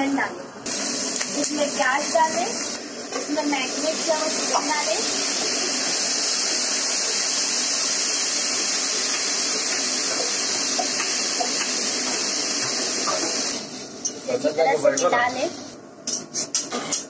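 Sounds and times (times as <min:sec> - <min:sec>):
chicken sizzling in hot oil: 0:00.7 - 0:13.9.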